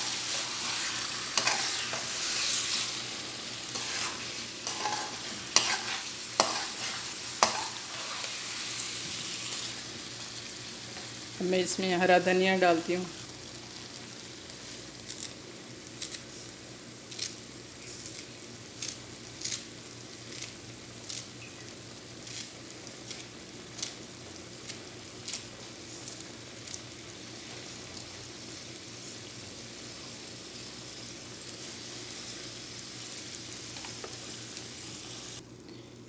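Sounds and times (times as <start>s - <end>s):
gravy sizzling in a pan: 0.0s - 35.5s.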